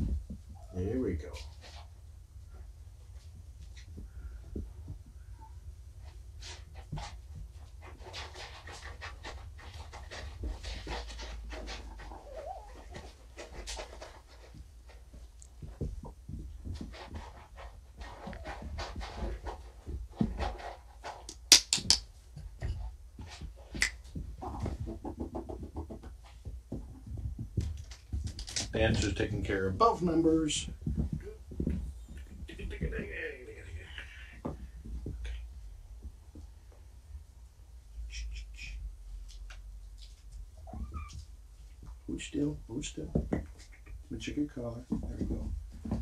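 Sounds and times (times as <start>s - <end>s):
low room hum: 0.0s - 46.0s
kittens scuffling on fabric: 6.0s - 21.3s, 22.4s - 36.9s.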